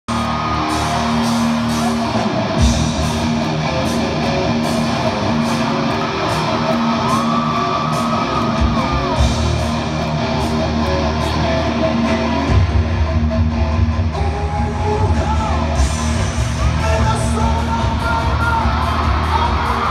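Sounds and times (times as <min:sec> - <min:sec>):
live rock band playing: 0:00.1 - 0:19.9
heavy bass: 0:08.5 - 0:19.9.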